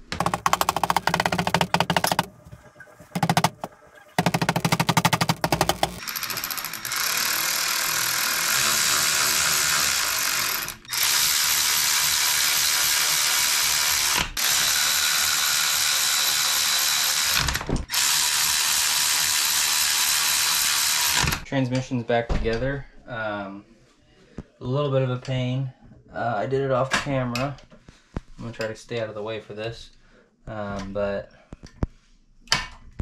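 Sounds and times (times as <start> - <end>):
electric ratchet running: 0.2 - 2.3, 3.2 - 3.6, 4.2 - 21.4.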